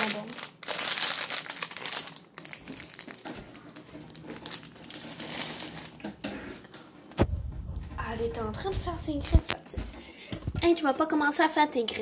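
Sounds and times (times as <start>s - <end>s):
plastic bag crinkling: 0.0s - 6.3s.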